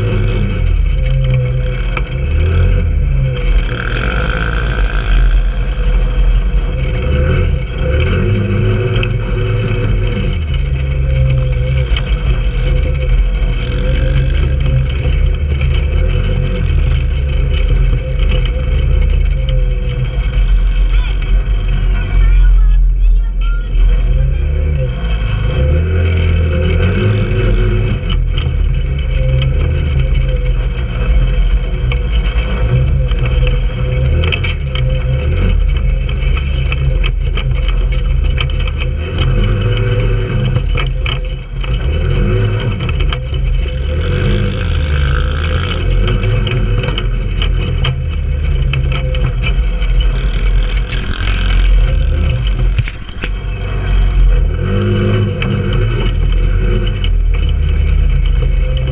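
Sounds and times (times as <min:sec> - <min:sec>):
rattles and knocks from bumps: 0:00.0 - 0:23.0, 0:23.7 - 0:58.9
go-kart engine running: 0:00.0 - 0:58.9.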